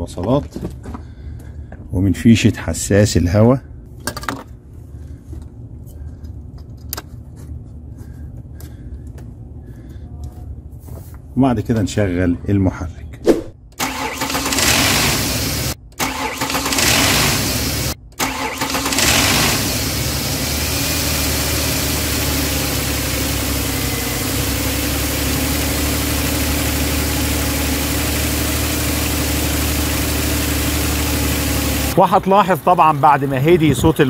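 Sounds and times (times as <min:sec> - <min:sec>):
car engine starting and idling: 0:13.7 - 0:34.0.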